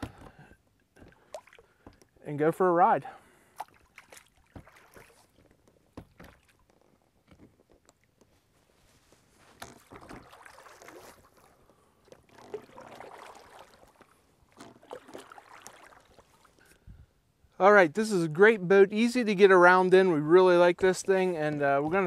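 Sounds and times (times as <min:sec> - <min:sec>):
oars splashing in water: 0:00.0 - 0:02.2, 0:03.4 - 0:08.2, 0:09.5 - 0:16.7
oars knocking: 0:21.0 - 0:22.0.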